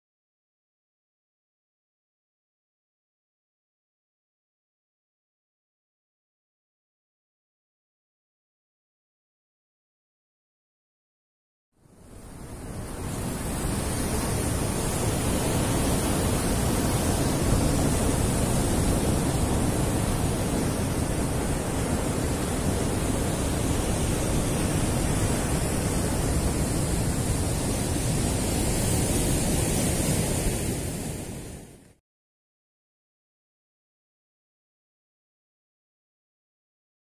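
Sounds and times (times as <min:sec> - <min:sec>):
surf rushing: 0:11.9 - 0:32.0
wind on microphone: 0:11.9 - 0:32.0.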